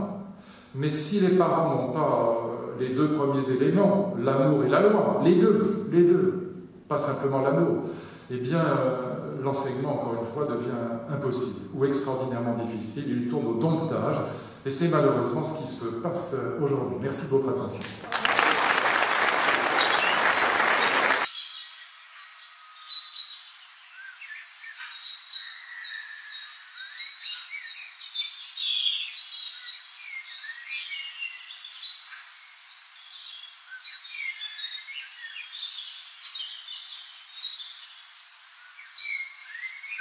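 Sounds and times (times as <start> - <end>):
audience applause: 17.8 - 21.3
birds chirping and trilling: 19.7 - 40.0.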